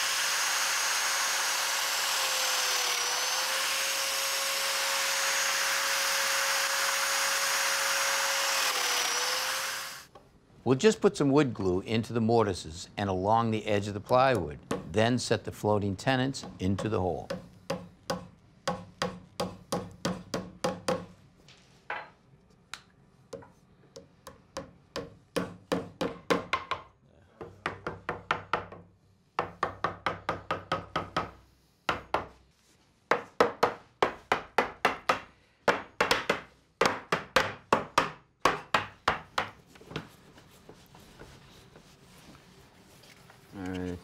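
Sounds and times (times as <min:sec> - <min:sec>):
hammer knocking on wood: 0:23.4 - 0:32.3, 0:33.1 - 0:40.1.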